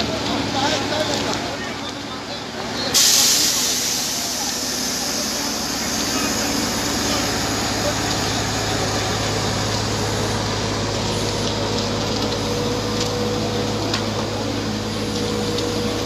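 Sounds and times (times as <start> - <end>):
low mechanical hum: 4.5 - 16.0.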